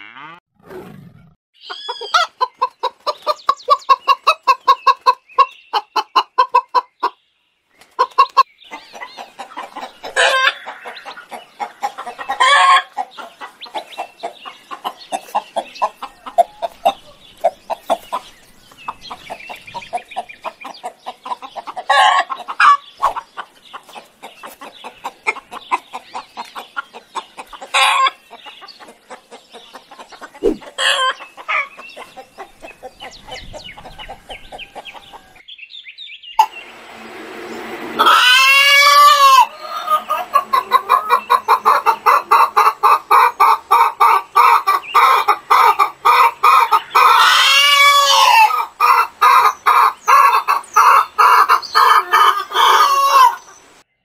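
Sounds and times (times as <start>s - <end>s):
hens clucking: 1.6s - 7.2s, 7.8s - 35.4s, 36.4s - 36.8s, 37.6s - 53.7s
sharp hen calls: 1.6s - 7.2s, 30.0s - 32.9s, 38.0s - 53.5s.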